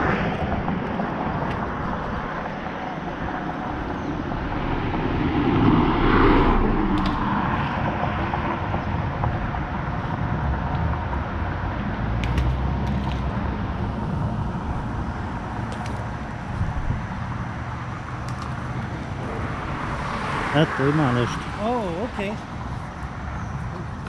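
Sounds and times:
low rumble: 0.0 - 17.6
road traffic: 0.0 - 24.0
vehicle passing: 0.0 - 24.0.

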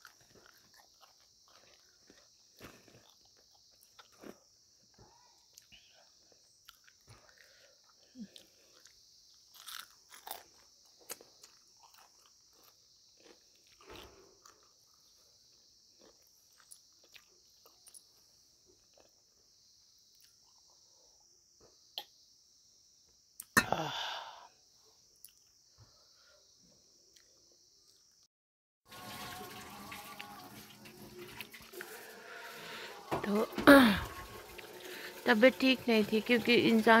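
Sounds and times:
chewing crunchy food: 0.0 - 19.3.

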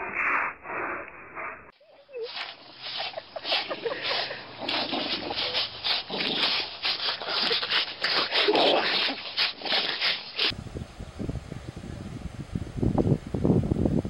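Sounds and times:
dogs scuffling: 2.0 - 10.5.

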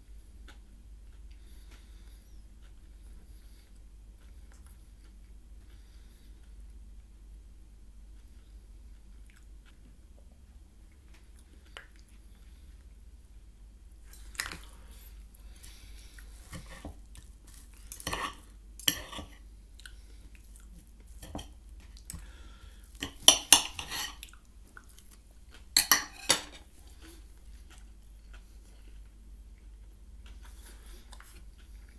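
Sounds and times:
chewing: 0.2 - 6.7, 8.2 - 13.0, 14.0 - 25.8, 26.6 - 31.9
cutlery clinking on plate: 23.0 - 24.2, 25.8 - 26.7.

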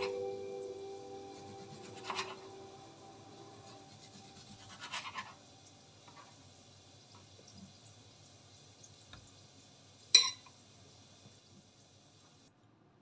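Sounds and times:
acoustic guitar notes: 0.0 - 3.9
knife slicing tomato on cutting board: 1.7 - 2.4, 3.9 - 5.4.

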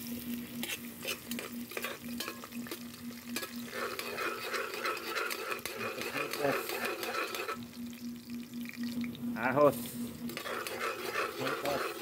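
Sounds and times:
ginger sizzling in hot oil: 0.0 - 12.0
utensil scraping metal pot: 0.6 - 7.8, 10.2 - 12.0.

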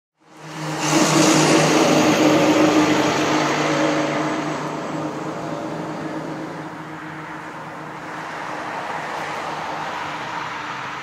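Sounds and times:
tyre and road noise: 0.2 - 11.0
vehicle engine hum: 0.2 - 11.0.

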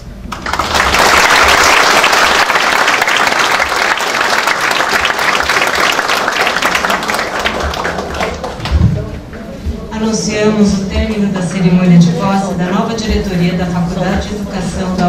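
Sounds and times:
audience applauding: 0.2 - 8.8.

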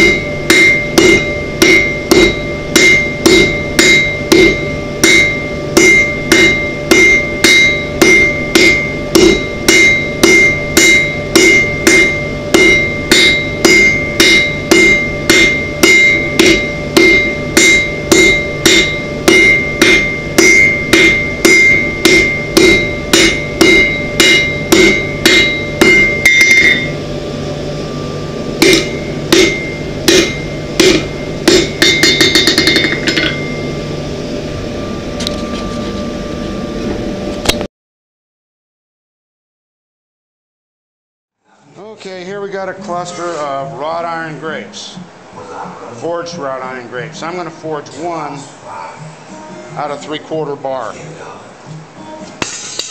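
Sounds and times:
anvil ringing: 0.0 - 27.0, 27.9 - 33.9, 52.4 - 52.9
hammer striking iron on anvil: 0.0 - 27.0, 28.6 - 33.7, 52.4 - 52.9.

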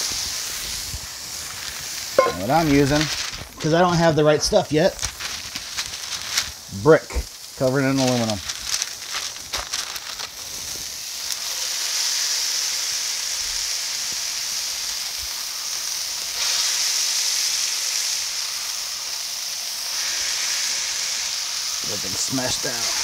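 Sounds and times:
meat sizzling on a griddle: 0.0 - 23.0.

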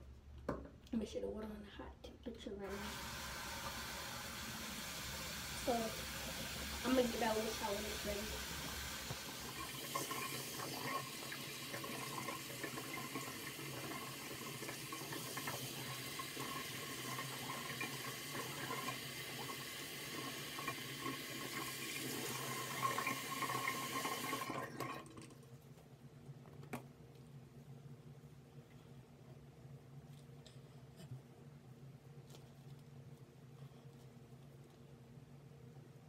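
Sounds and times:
shower running: 2.6 - 25.3.

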